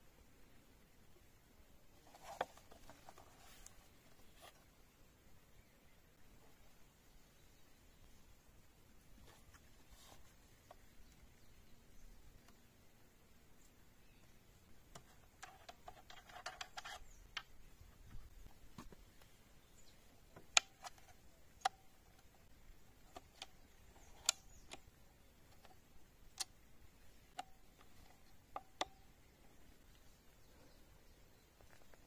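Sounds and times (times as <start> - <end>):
rustling: 1.9 - 4.8, 9.1 - 11.2.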